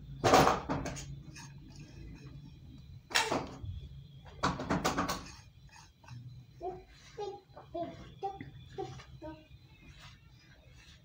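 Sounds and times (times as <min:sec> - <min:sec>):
faint steady hum: 0:00.0 - 0:11.0
rustling handling noise: 0:05.2 - 0:11.0.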